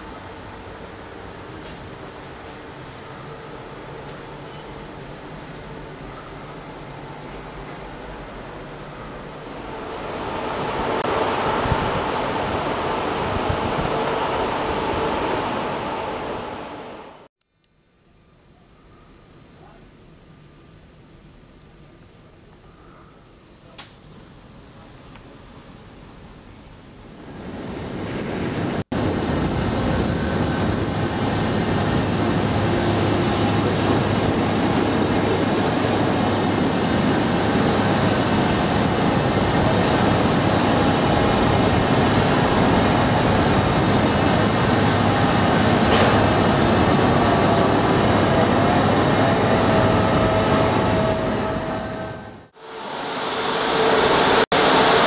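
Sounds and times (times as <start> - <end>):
loud mechanical roar of machinery: 29.0 - 55.0.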